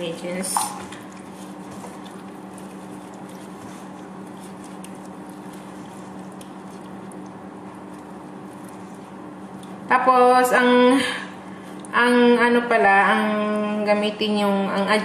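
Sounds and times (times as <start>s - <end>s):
steady low hum: 0.0s - 15.0s
hands squishing chicken in marinade: 0.8s - 9.8s.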